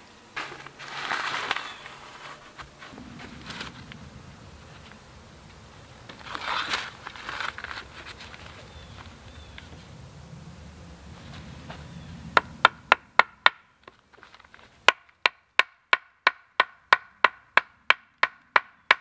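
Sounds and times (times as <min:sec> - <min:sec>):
crunching and rustling: 0:00.0 - 0:10.0, 0:13.8 - 0:14.9.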